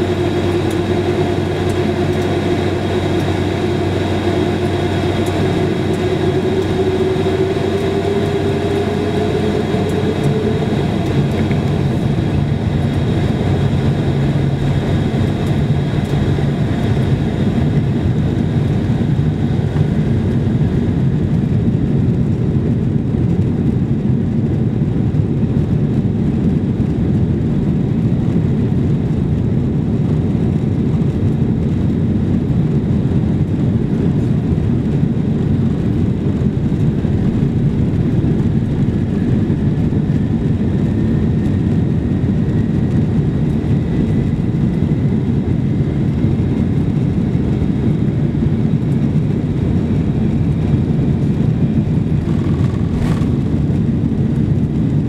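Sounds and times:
faint rising whine: 0.0s - 20.3s, 35.4s - 43.0s
jet engines rumbling: 0.0s - 55.0s.

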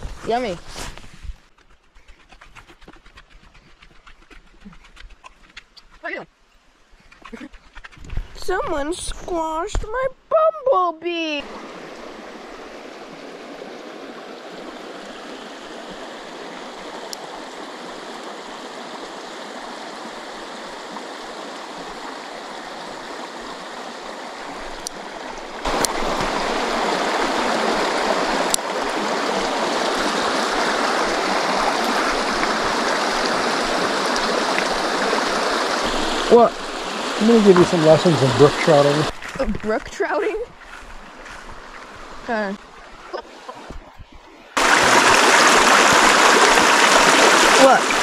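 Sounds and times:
stream water rushing: 11.4s - 48.0s.

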